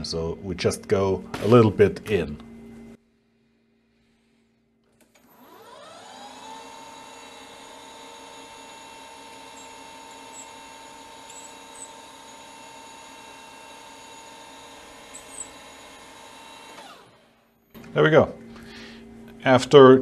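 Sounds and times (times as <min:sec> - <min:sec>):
lathe motor whine: 0:05.0 - 0:19.4.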